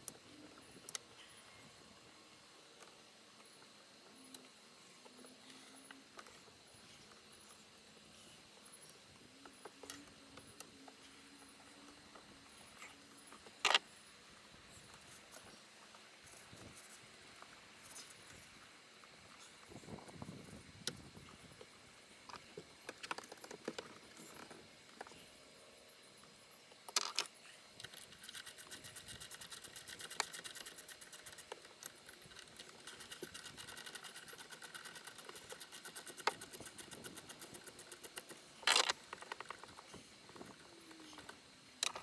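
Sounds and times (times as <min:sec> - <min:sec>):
hand ratchet clicking: 0:27.8 - 0:39.6.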